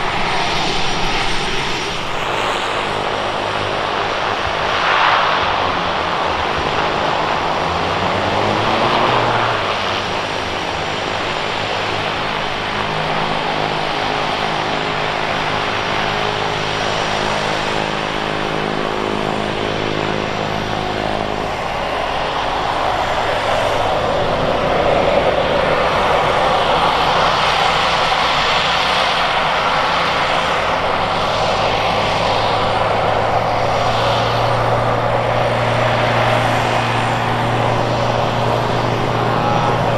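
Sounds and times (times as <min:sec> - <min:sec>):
turboprop plane taxiing: 0:00.0 - 0:39.9.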